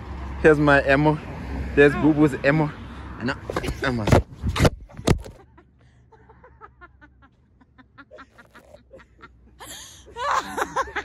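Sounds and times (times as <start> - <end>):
faint laughter: 5.4 - 11.0.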